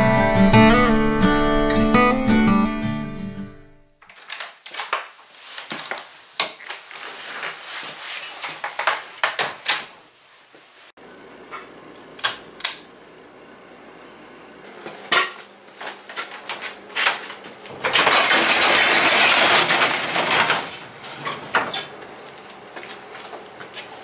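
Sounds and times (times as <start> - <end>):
metal garage door rattling: 17.7 - 22.0.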